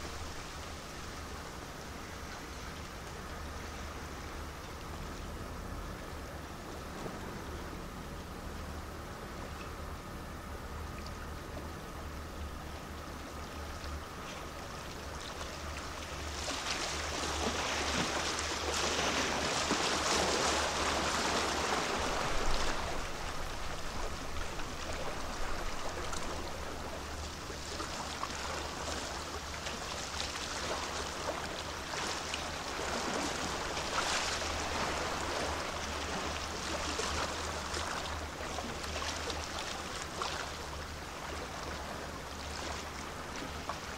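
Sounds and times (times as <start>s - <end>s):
water rushing and splashing: 0.0s - 2.1s, 13.9s - 43.9s
low steady hum: 0.0s - 43.9s.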